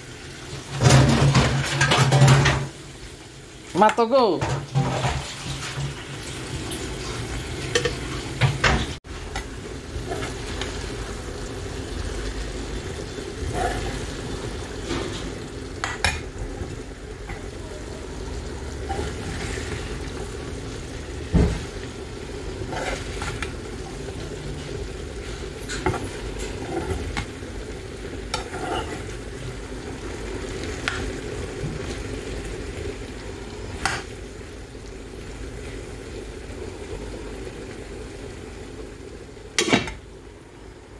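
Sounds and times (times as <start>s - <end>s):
food sizzling in a pan: 0.0s - 40.9s
metal ladle scraping a pan: 10.0s - 10.8s, 18.8s - 20.2s, 22.6s - 27.3s, 28.3s - 29.2s.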